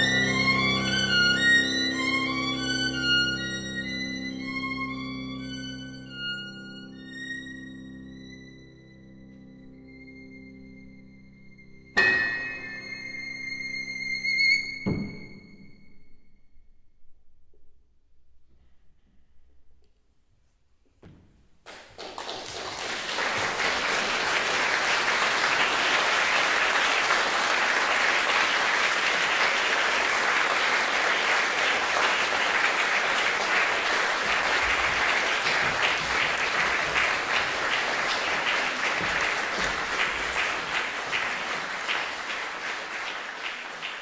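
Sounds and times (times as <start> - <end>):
audience applauding: 21.7 - 44.0.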